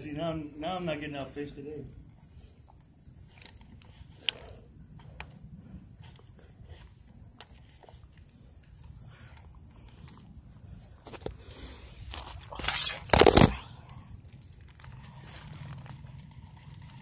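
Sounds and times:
quiet low rumble: 0.0s - 17.0s.

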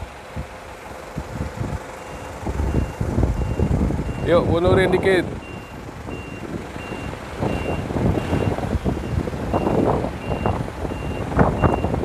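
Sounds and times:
vehicle engine rumble: 0.0s - 12.0s
reversing beeper: 2.0s - 4.5s, 5.4s - 12.0s.

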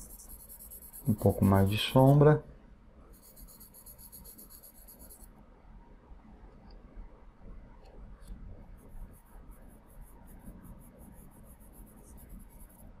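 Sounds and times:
pencil scratching on paper: 0.0s - 2.3s, 3.1s - 5.3s, 8.8s - 13.0s.

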